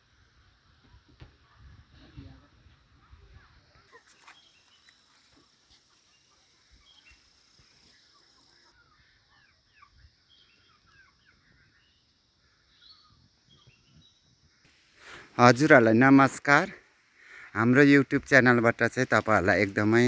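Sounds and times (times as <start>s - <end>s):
faint bird chirping: 0.7s - 20.0s.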